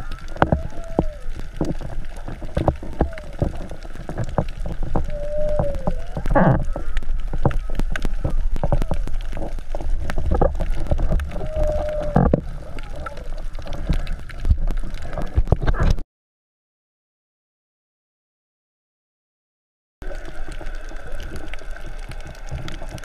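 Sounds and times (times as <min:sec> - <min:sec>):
low water rumble: 0:00.0 - 0:16.0, 0:20.0 - 0:23.0
underwater crackling clicks: 0:00.0 - 0:16.0, 0:20.0 - 0:23.0
drawn-out moaning tone: 0:11.3 - 0:13.4.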